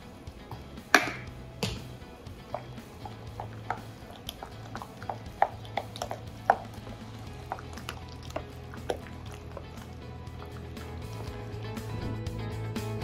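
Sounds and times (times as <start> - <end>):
sharp knocks on bowl: 0.9 - 1.9.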